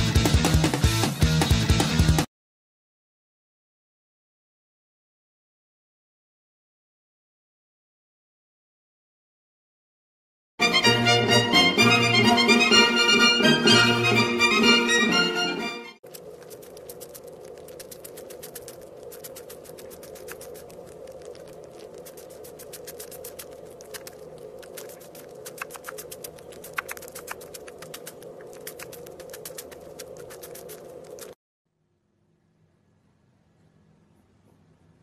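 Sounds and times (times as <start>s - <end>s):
sharp clicks: 16.0s - 31.4s
kitten purring: 16.1s - 31.4s.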